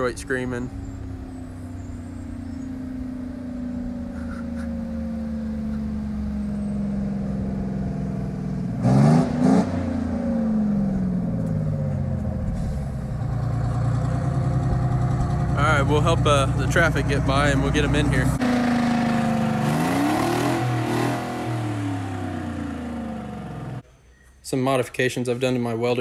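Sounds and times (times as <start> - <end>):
unmuffled bus engine running: 0.0 - 8.8.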